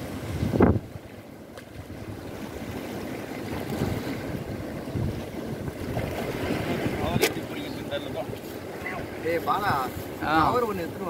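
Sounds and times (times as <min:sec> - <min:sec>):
wind on microphone: 0:00.0 - 0:01.1, 0:01.7 - 0:11.0
sea waves washing against rocks: 0:00.0 - 0:11.0.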